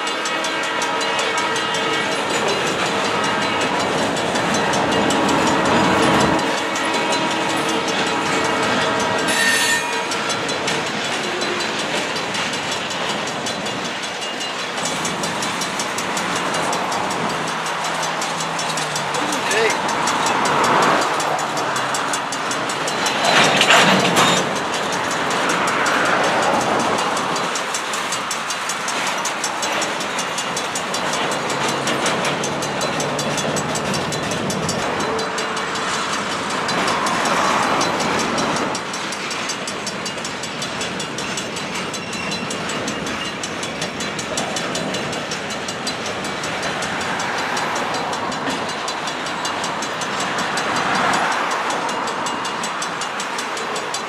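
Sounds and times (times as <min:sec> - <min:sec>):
freight train rolling past: 0:00.0 - 0:54.0.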